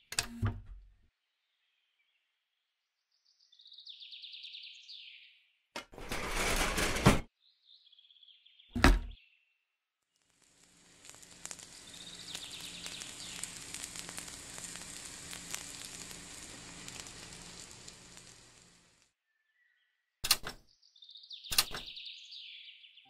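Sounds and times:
crackling sizzle: 0:10.0 - 0:19.2
plastic oven door clicking shut: 0:21.5 - 0:21.9.

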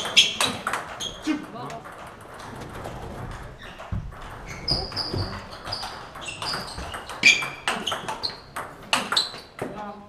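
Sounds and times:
table tennis ball clicking: 0:03.3 - 0:09.7.

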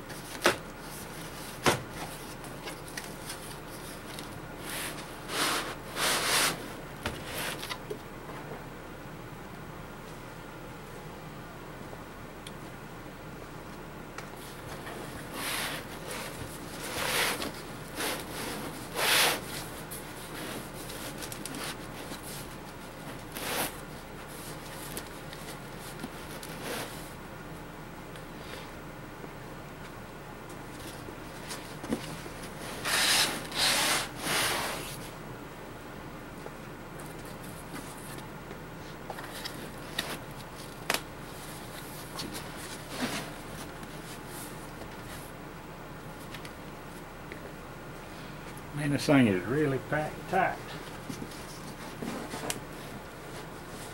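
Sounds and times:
cardboard box scraping and rustling: 0:42.2 - 0:44.3.

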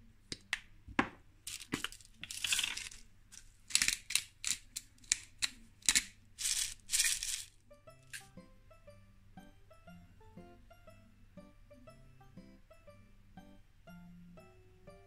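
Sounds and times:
seasoning being ground and crumbled: 0:01.5 - 0:08.3.

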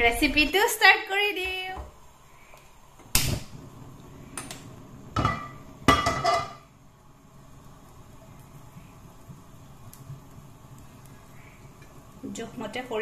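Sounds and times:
iron pan clanking on metal grate: 0:05.2 - 0:06.6.

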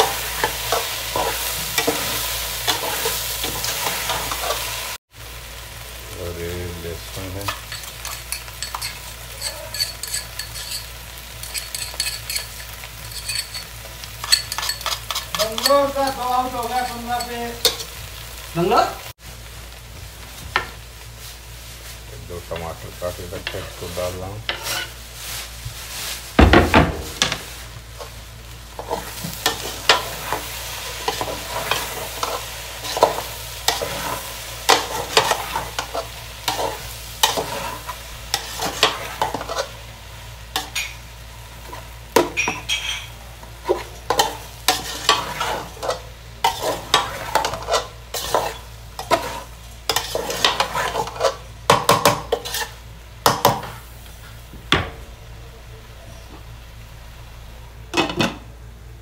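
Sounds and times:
food sizzling in oil: 0:00.0 - 0:55.4
metal spatula scraping pot: 0:07.7 - 0:17.9, 0:24.5 - 0:25.0, 0:28.8 - 0:39.7, 0:42.4 - 0:51.4, 0:52.0 - 0:52.8.

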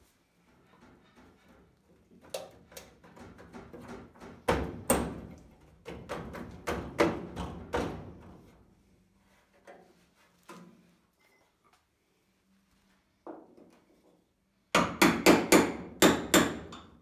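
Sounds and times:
sheet-metal clanks and knocks: 0:00.5 - 0:08.5.

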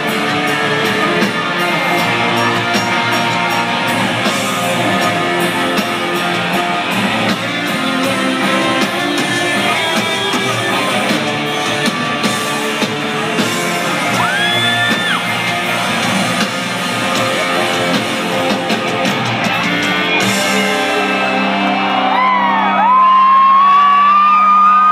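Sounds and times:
live country-rock band playing: 0:00.0 - 0:24.4
fans whooping and yelling: 0:13.4 - 0:16.1, 0:20.1 - 0:24.9.

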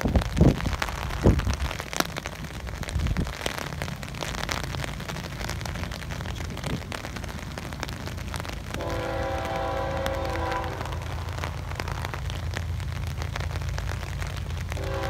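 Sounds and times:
steady rain with ticking drops: 0:00.0 - 0:15.0
low rumble: 0:09.6 - 0:15.0.

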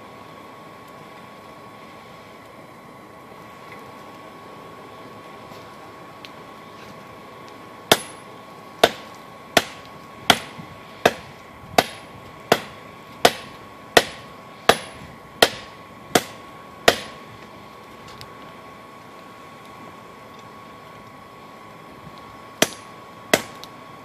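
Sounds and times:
hammer striking hot steel: 0:07.8 - 0:17.3, 0:22.6 - 0:23.7.

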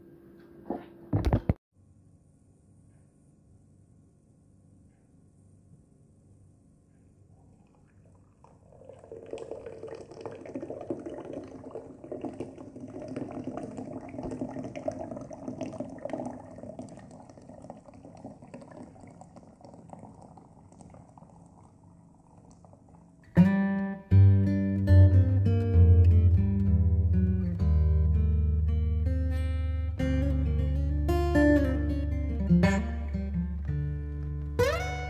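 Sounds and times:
drink pouring into a mug: 0:07.6 - 0:23.2.

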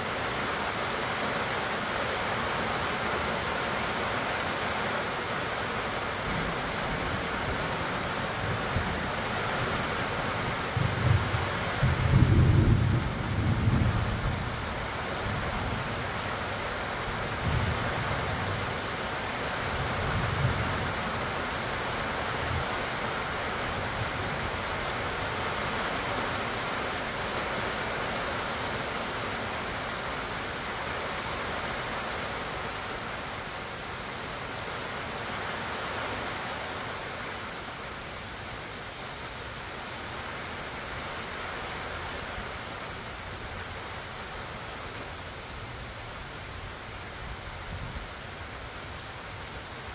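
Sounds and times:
steady rain falling: 0:00.0 - 0:49.9
low thunder rumbles: 0:10.7 - 0:15.5.

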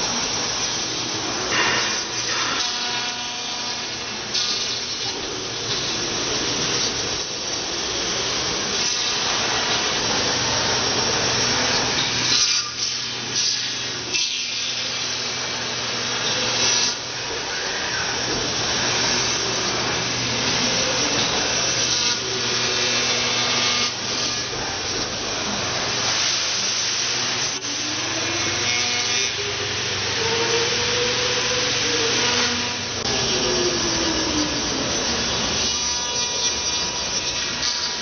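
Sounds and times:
running hum: 0:00.0 - 0:38.0
router spindle cutting foam: 0:07.7 - 0:38.0
pitched machine whines: 0:14.2 - 0:38.0.

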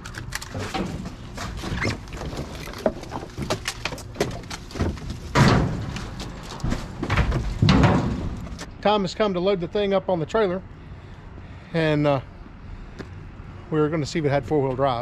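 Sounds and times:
junk rustling and clunking: 0:00.0 - 0:08.7
loud thud: 0:07.0 - 0:08.6.

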